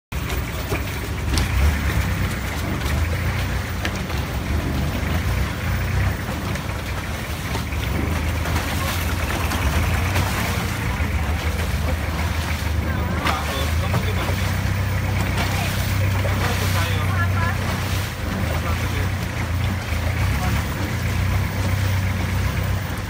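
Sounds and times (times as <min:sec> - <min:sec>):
boat engine droning: 0:00.1 - 0:23.0.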